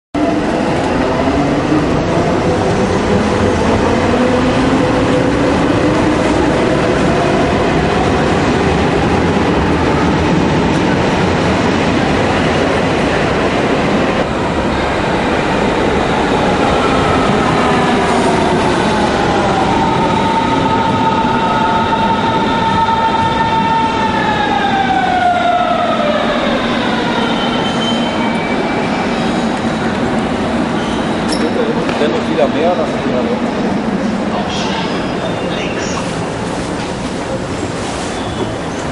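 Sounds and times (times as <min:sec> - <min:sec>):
train braking to a stop: 0:16.7 - 0:32.3, 0:37.7 - 0:38.9.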